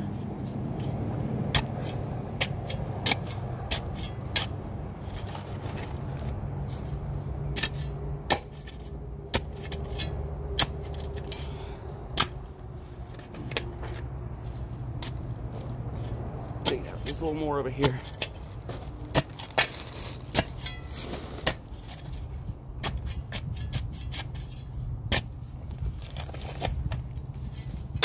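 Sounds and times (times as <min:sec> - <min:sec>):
shovel chopping into wet soil: 0:01.5 - 0:04.5, 0:19.1 - 0:22.1.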